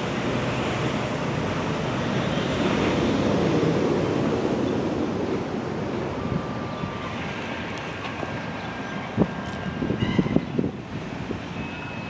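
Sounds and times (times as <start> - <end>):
wind buffeting microphone: 2.8 - 11.7.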